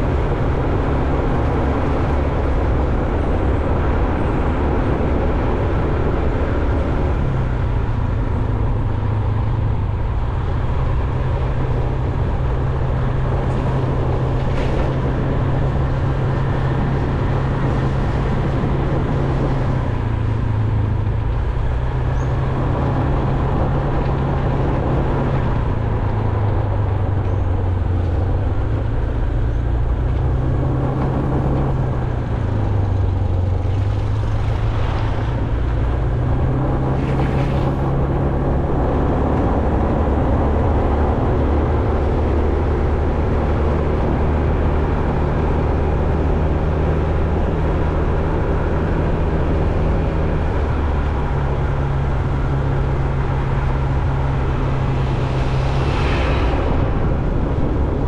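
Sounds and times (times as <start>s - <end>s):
road and wind noise: 0.0s - 58.0s
vehicle engine hum: 0.0s - 58.0s.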